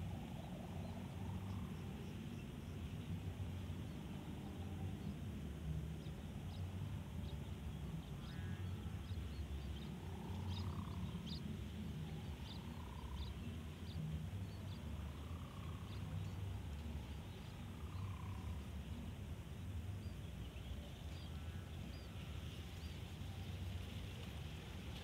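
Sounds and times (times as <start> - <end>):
wind rumbling on microphone: 0.0 - 25.0
faint bird-like chirps: 7.9 - 19.2.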